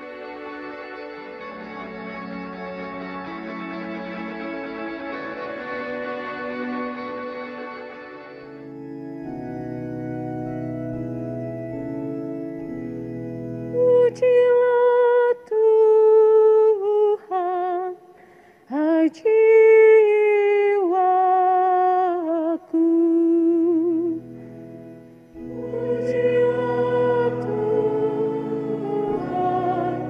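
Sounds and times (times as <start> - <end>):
organ: 0.0 - 15.3, 23.0 - 30.0
person singing unaccompanied: 13.7 - 24.4, 25.4 - 30.0
voices singing: 25.4 - 30.0.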